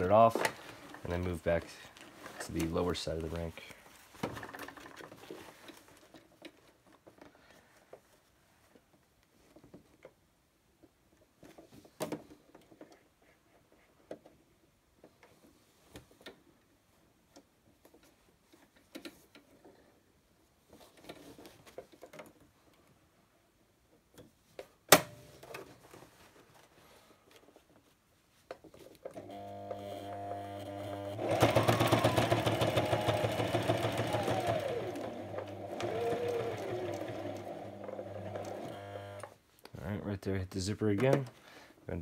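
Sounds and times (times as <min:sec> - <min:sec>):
fabric rustling: 0:00.0 - 0:09.6, 0:31.2 - 0:39.2.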